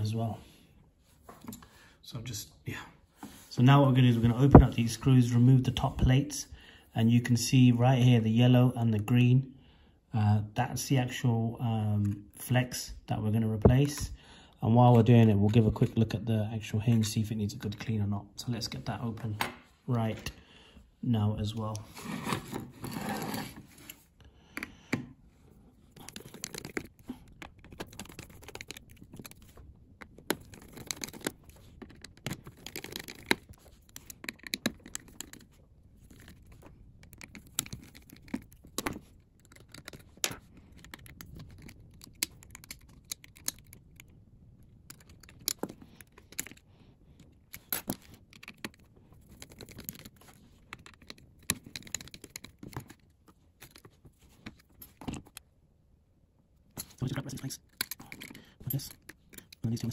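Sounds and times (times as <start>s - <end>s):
screwdriver clicking on tiny screws: 26.0s - 35.4s, 36.1s - 44.1s.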